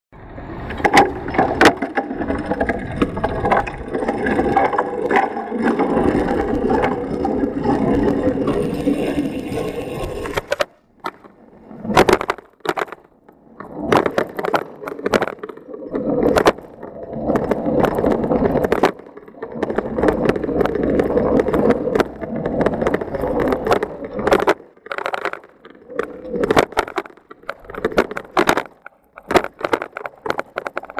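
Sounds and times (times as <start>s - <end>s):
bicycle rattling over pavement: 0.8s - 11.0s.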